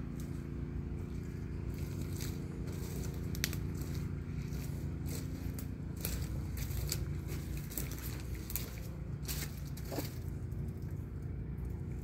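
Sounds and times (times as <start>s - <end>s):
footsteps on dry leaves: 0.0s - 11.2s
steady low hum: 0.0s - 12.0s.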